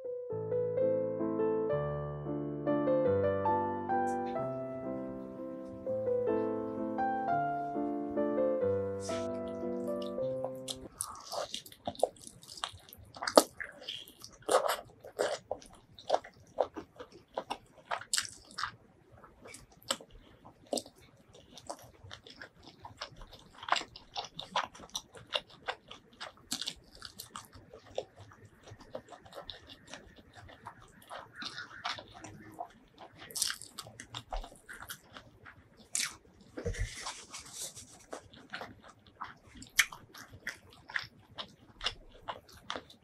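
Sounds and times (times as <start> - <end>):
person chewing food: 7.7 - 43.0
food crunching: 9.0 - 43.0.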